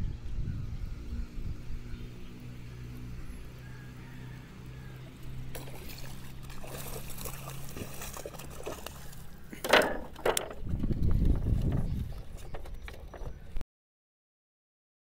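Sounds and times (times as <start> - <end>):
fish thrashing and splashing: 5.5 - 10.4.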